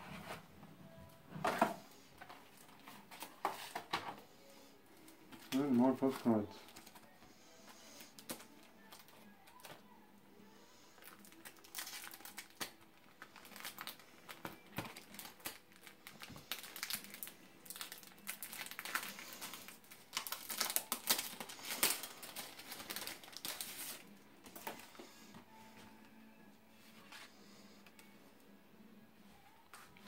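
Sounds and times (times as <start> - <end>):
plastic wrapping crinkling: 5.0 - 7.1, 11.0 - 25.0.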